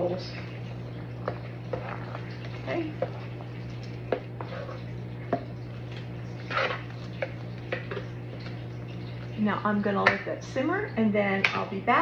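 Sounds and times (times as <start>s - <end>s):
wooden spoon stirring thick soup: 1.1s - 8.6s.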